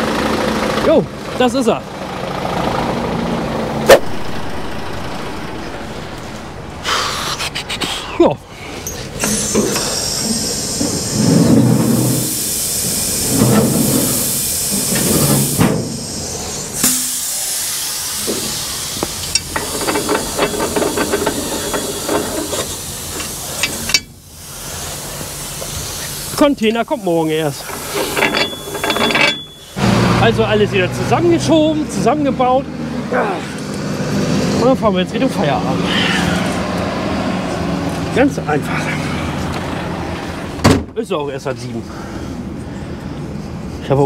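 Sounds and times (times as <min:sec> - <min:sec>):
diesel engine idling: 0:00.0 - 0:33.8
sharp bang: 0:03.7 - 0:09.8
steady hiss: 0:04.0 - 0:28.2
metallic clanking and rattling: 0:19.3 - 0:24.2, 0:27.5 - 0:29.8.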